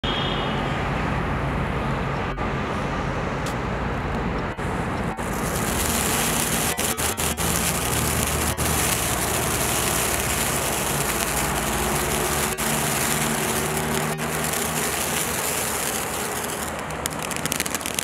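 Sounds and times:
firework fountain hissing: 4.6 - 18.0.

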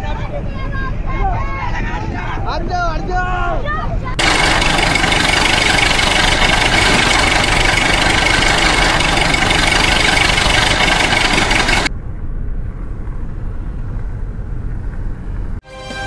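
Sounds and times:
low rumble: 4.0 - 15.6
churning water: 4.2 - 11.9
tractor engine running rough: 4.2 - 11.9.

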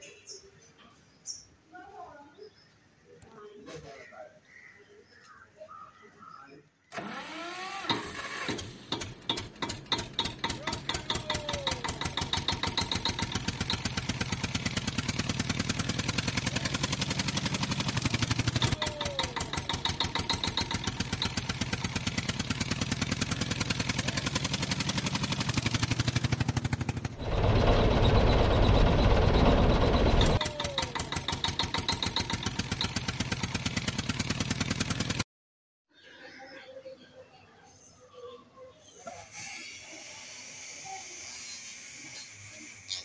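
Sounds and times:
tractor diesel engine chugging: 7.0 - 35.2.

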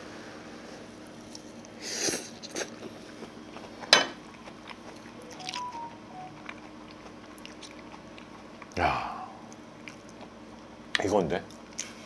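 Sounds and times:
person chewing food: 1.3 - 10.7.

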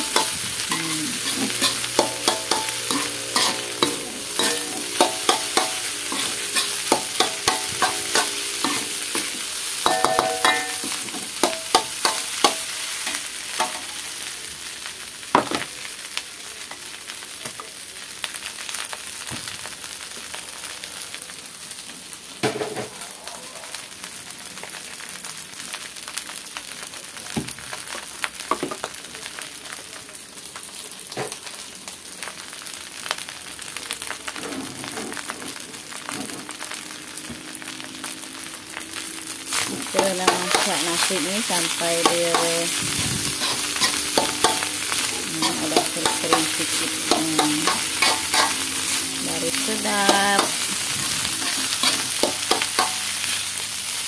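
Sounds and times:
metal spatula scraping wok: 0.0 - 13.9, 39.5 - 53.4
food sizzling: 0.0 - 54.0.

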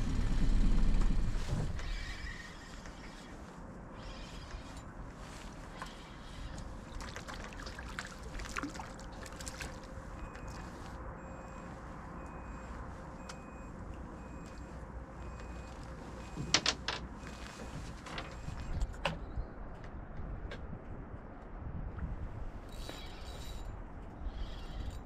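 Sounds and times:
wind: 0.0 - 25.0
lapping water: 6.5 - 10.7.

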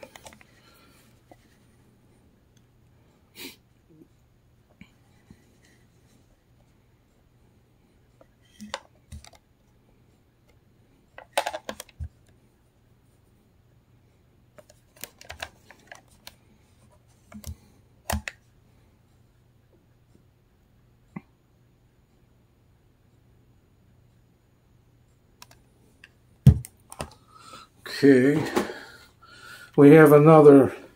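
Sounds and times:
plastic radio clicks: 0.0 - 0.4, 11.2 - 12.1, 14.6 - 16.4, 17.3 - 18.4, 25.4 - 25.6.

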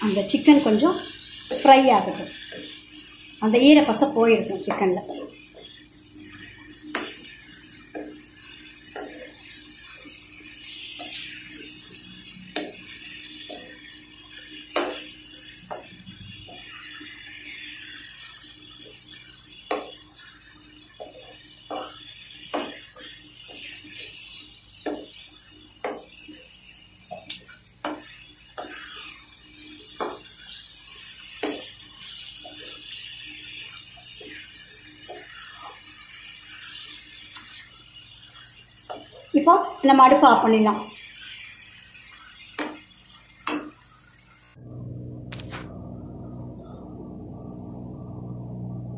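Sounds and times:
food frying: 0.0 - 46.4.

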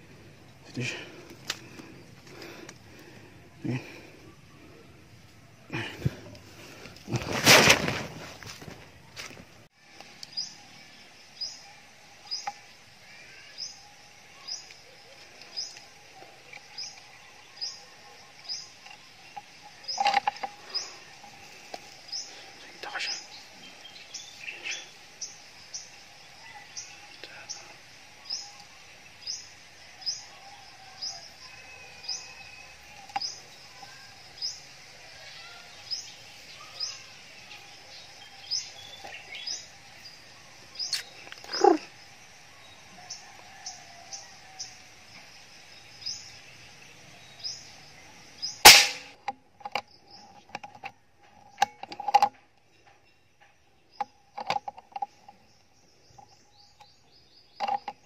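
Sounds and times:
clicks and rustles: 6.3 - 9.5, 48.6 - 53.0, 54.0 - 55.4
rifle shot: 48.7 - 49.2.

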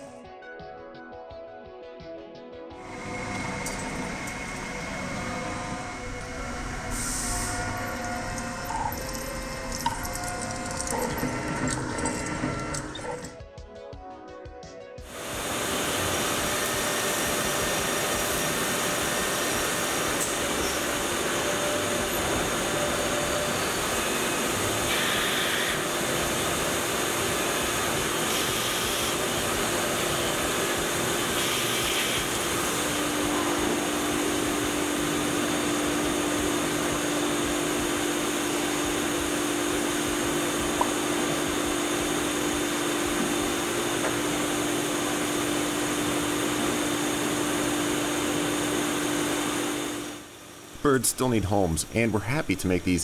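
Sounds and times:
steady machine tone: 2.8 - 13.4, 15.1 - 53.0
lathe spindle and coolant spray: 15.1 - 52.2.

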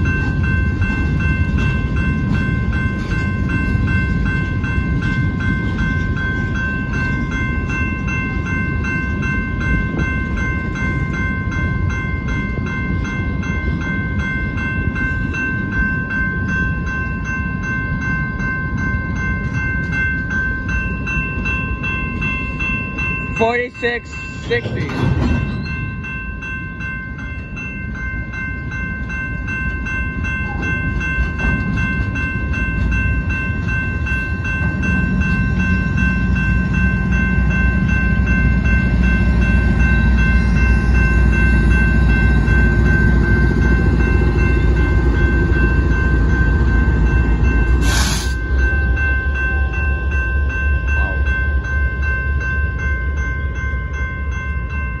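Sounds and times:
crossing bell ringing: 0.0 - 55.0
diesel locomotive rumble: 0.0 - 55.0
sharp hiss: 47.8 - 48.4.

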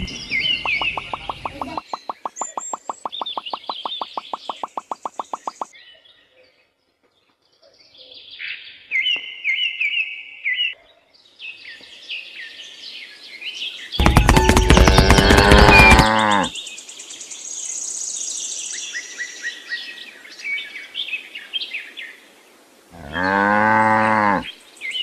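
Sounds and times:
songbirds chirping: 0.0 - 25.0
fast even ticking beat: 0.7 - 5.7, 14.0 - 16.2.

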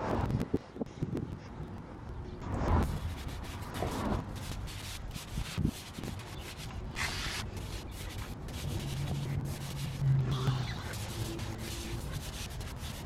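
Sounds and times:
brush scrubbing wet wheel: 2.9 - 13.0.

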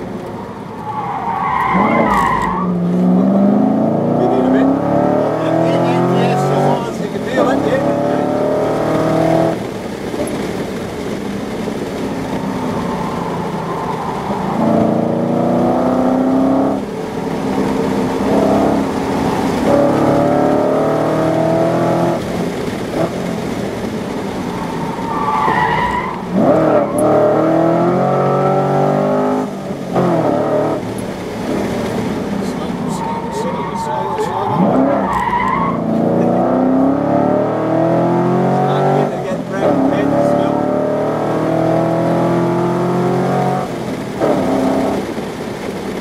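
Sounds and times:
car engine revving: 0.0 - 46.0
tyre squeal: 0.8 - 2.8.

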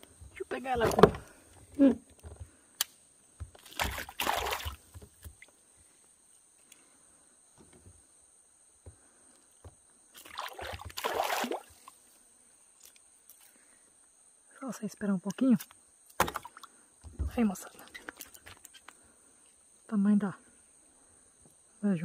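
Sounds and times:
water splashing: 3.6 - 5.0, 10.2 - 12.0.

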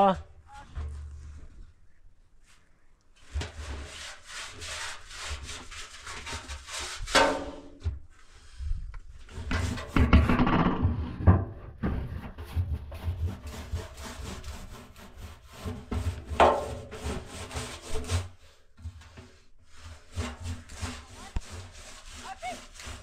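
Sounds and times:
hand scraping steel drum: 3.2 - 7.8, 9.2 - 23.0.

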